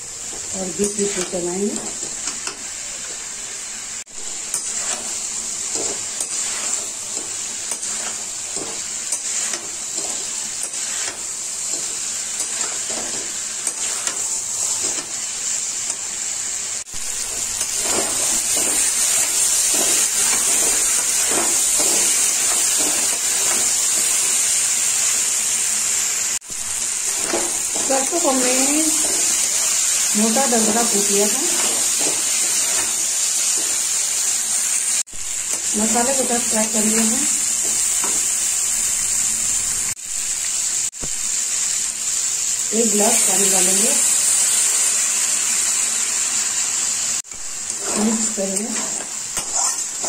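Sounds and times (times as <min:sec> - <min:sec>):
curry sizzling in a pan: 0:00.0 - 0:50.0
metal spatula scraping a pan: 0:04.5 - 0:15.2.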